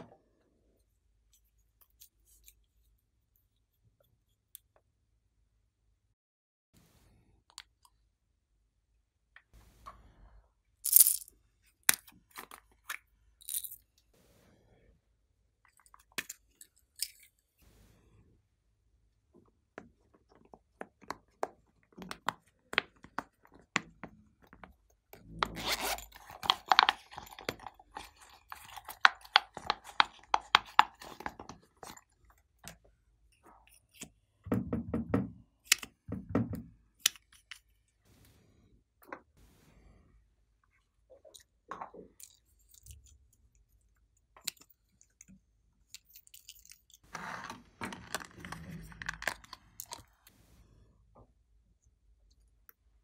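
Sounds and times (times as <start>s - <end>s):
plastic objects clicking and scraping: 25.4s - 34.2s, 44.4s - 50.4s.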